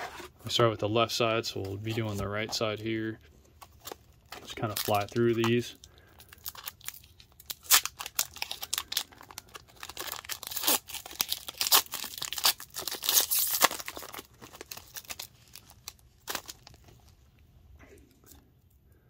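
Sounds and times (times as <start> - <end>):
foil wrappers tearing and crinkling: 3.8 - 5.6, 6.2 - 16.9.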